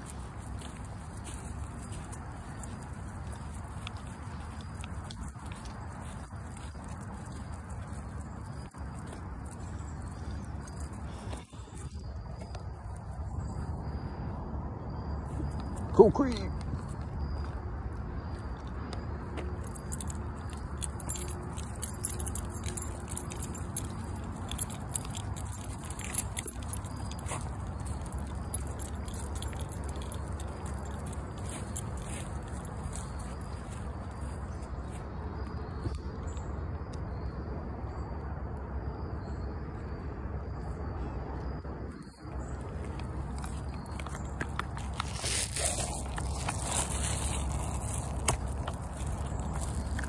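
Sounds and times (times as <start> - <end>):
dog collar tags jingling: 0.0 - 12.6, 18.8 - 34.6, 42.2 - 50.0
low outdoor rumble: 0.0 - 50.0.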